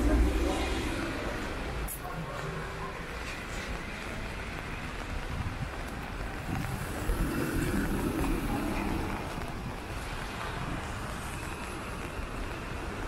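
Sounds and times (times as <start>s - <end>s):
vehicle tyres hissing on wet road: 0.0s - 13.0s
wind noise on microphone: 3.5s - 13.0s.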